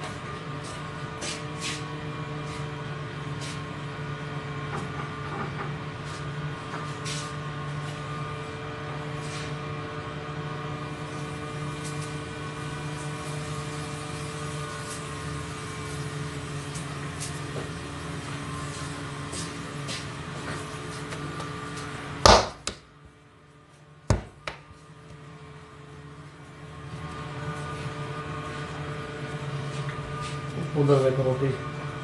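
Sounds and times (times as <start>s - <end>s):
kitchen equipment drone: 0.0s - 32.0s
sharp taps and knocks: 24.1s - 24.7s.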